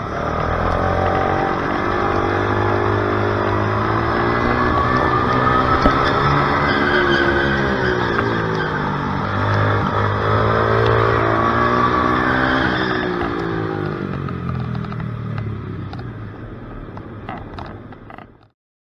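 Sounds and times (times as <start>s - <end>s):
small racing engine revving: 0.0s - 14.5s.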